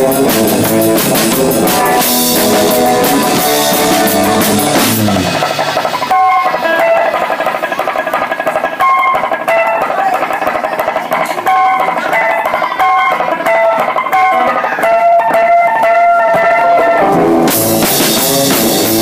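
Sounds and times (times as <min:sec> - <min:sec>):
electric guitar picked notes: 0:00.0 - 0:07.0, 0:16.1 - 0:19.0.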